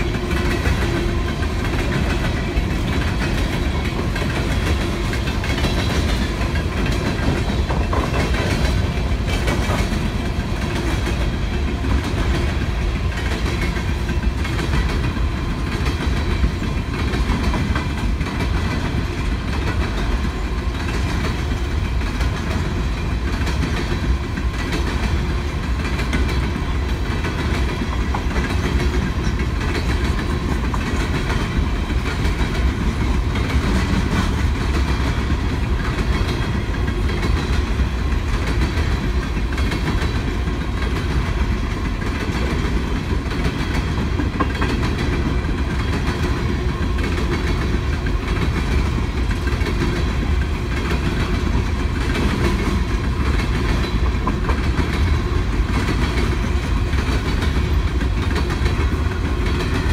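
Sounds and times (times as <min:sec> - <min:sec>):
steel wheels rumbling on rails: 0:00.0 - 0:59.9
wheels clickety-clack on rail joints: 0:00.0 - 0:59.9.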